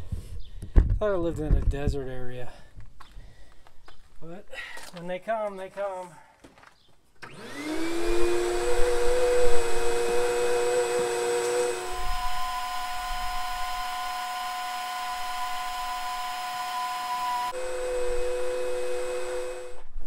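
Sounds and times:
vacuum cleaner motor whining: 7.2s - 20.0s.

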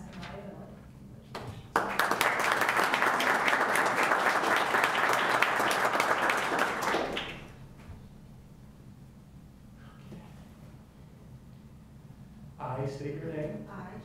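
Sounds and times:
audience clapping: 1.4s - 7.6s.

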